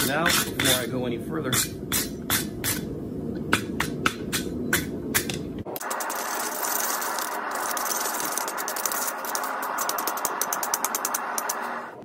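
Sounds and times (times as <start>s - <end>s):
wire brush scrubbing steel: 5.8s - 11.9s.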